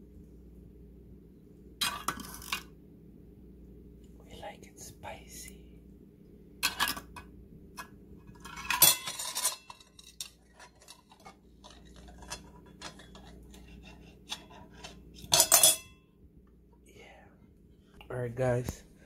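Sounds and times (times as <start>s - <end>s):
fork scraping tin can: 8.5s - 15.8s
fork clattering on plate: 14.3s - 16.0s.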